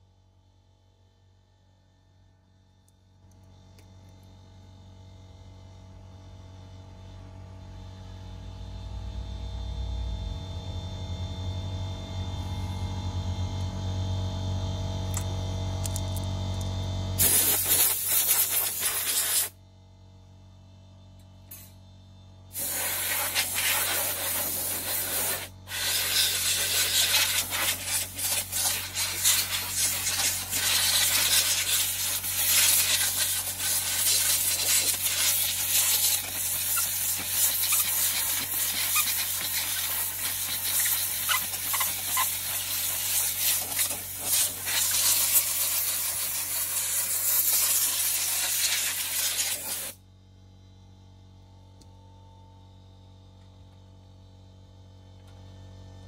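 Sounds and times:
steady hum: 12.1 - 50.0
compressed air hissing from nozzle: 17.2 - 19.6, 22.5 - 50.0.

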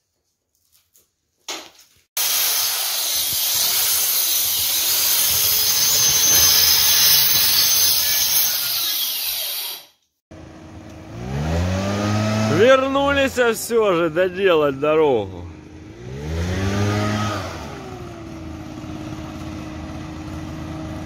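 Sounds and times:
power tool cutting plaster wall: 2.2 - 10.0, 11.2 - 12.7, 16.1 - 18.0.

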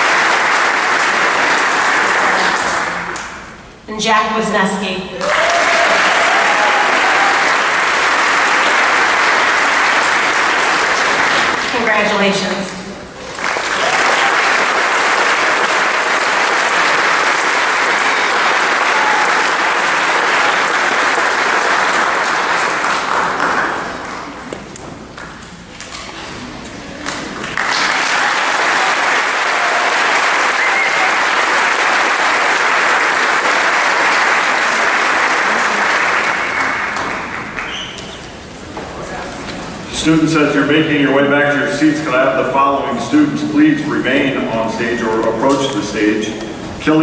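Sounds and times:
audience applauding: 0.0 - 3.4, 5.2 - 12.0, 13.2 - 25.4, 26.9 - 38.5.

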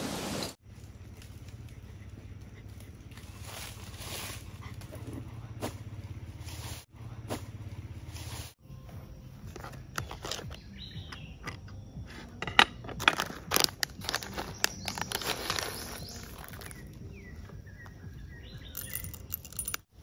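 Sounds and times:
birds chirping: 9.0 - 12.4, 13.8 - 19.8
metallic clinks and knocks: 18.7 - 19.9.

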